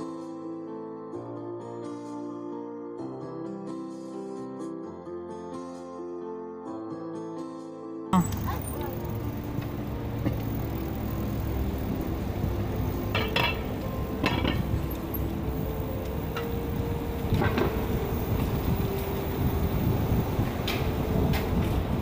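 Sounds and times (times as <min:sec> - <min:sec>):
bicycle tyres rumbling: 0:08.2 - 0:22.0
metallic clinks and rattles: 0:13.0 - 0:15.3.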